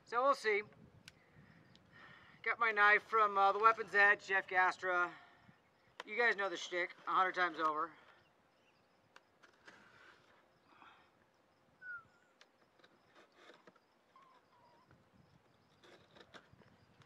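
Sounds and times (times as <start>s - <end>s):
bird chirping: 4.2s - 9.3s, 11.4s - 12.4s.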